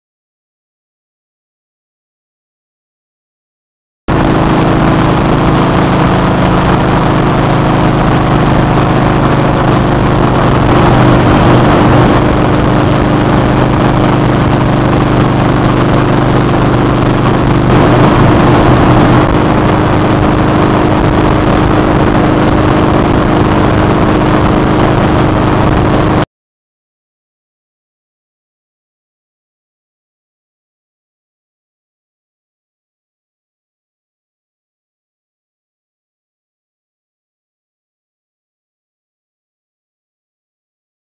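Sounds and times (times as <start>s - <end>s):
motorcycle engine cruising: 4.1s - 26.3s
wind and road rush: 4.1s - 26.3s.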